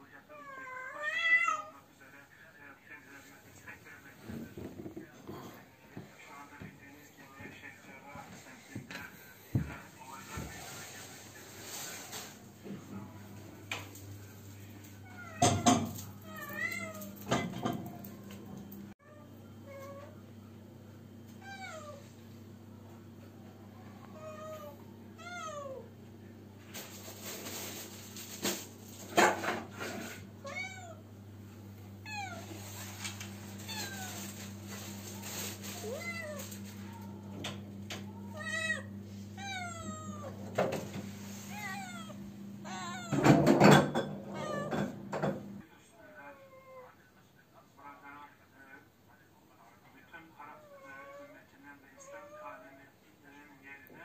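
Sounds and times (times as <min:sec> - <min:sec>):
cat meowing: 0:00.3 - 0:01.8, 0:21.4 - 0:22.1, 0:24.1 - 0:25.9, 0:30.4 - 0:31.0, 0:32.0 - 0:32.8, 0:33.6 - 0:34.5, 0:35.3 - 0:37.2, 0:38.1 - 0:40.4, 0:41.4 - 0:43.5, 0:44.3 - 0:44.9.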